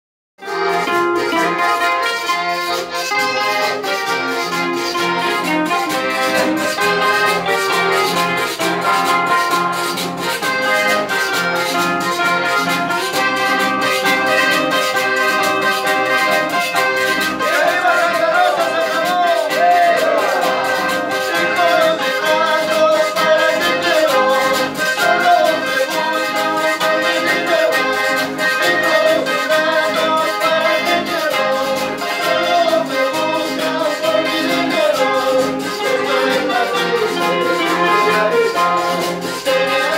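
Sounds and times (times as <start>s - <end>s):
acoustic guitars: 0.4s - 39.9s
piano accordion: 0.4s - 39.9s
person singing: 13.9s - 39.9s.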